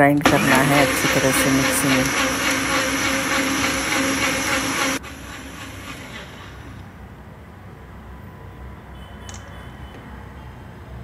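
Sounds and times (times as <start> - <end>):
mixer grinder motor running: 0.2 - 6.7.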